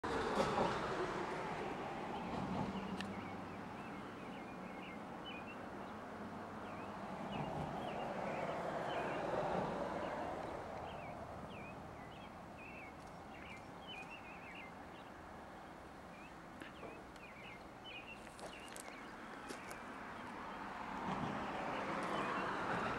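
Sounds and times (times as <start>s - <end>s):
small birds chirping: 2.8s - 6.0s, 10.0s - 20.4s.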